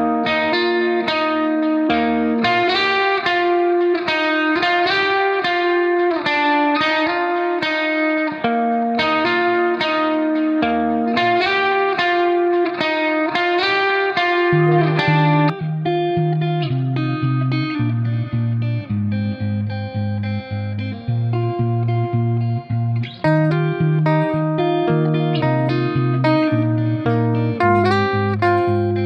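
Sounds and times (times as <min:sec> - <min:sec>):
guitar melody: 0:00.0 - 0:29.0.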